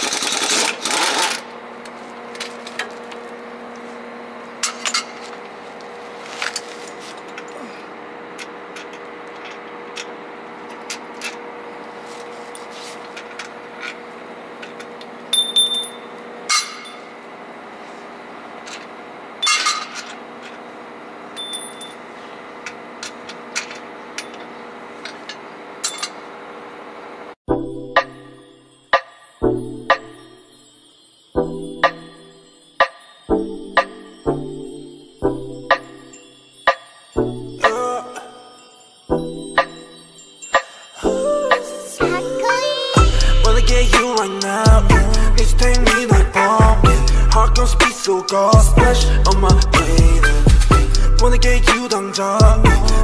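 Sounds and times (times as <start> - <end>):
pneumatic tool bursts: 0.0 - 1.5
steady background hum: 0.0 - 27.4, 39.5 - 53.0
metallic clinks of tools: 14.6 - 17.2, 18.7 - 20.6, 21.4 - 26.2, 35.7 - 41.8.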